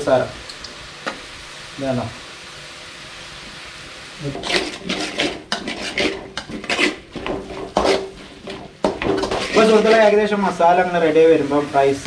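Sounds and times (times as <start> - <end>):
vegetables sizzling in a pan: 0.0 - 12.0
metal spatula scraping a pan: 4.2 - 10.5.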